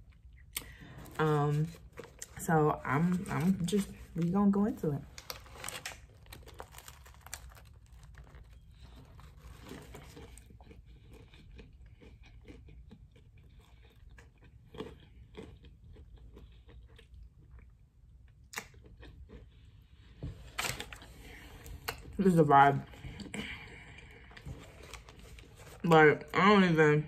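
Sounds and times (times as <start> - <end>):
crunchy chewing: 5.3 - 20.2.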